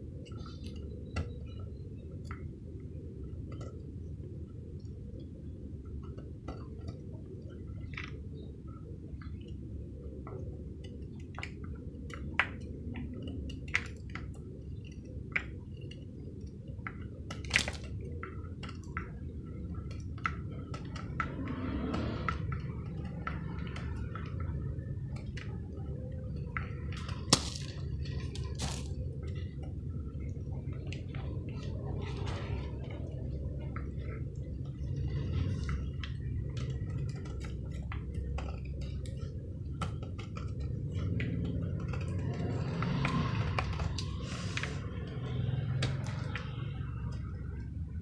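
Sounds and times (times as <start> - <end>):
steady low hum: 0.0 - 48.0
wet crumbling: 17.3 - 18.0, 27.0 - 29.1.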